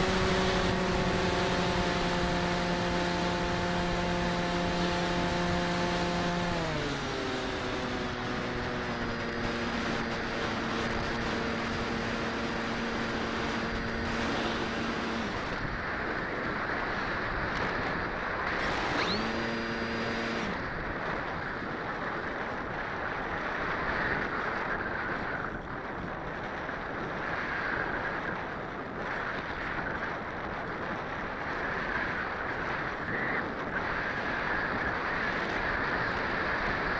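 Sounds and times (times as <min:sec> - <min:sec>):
electric motor and propeller hum: 0:00.0 - 0:22.2
wind rushing over microphone: 0:00.0 - 0:36.9.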